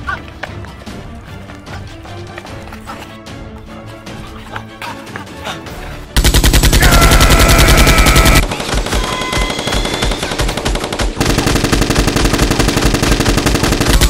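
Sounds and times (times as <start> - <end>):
rapid automatic gunfire: 6.2 - 14.0.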